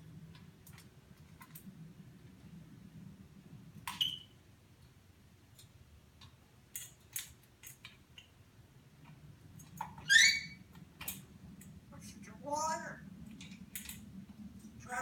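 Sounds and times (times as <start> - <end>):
parrot whistled call: 10.0 - 10.6.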